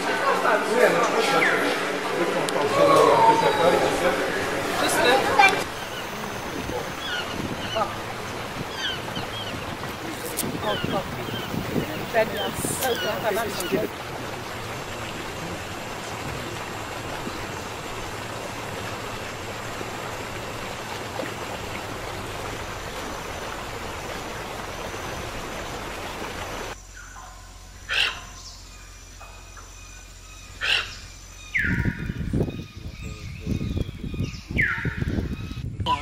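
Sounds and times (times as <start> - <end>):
steady rushing noise: 0.0 - 26.8
low rumbling: 0.0 - 36.0
bird calls and chirps: 5.7 - 8.0, 8.6 - 9.8, 10.4 - 13.9, 26.8 - 36.0.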